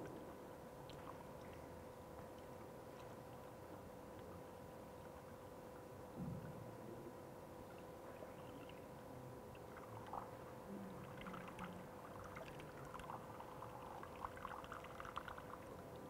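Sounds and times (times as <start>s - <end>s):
faint steady hum: 0.0s - 16.0s
water trickling into pipe: 7.6s - 16.0s.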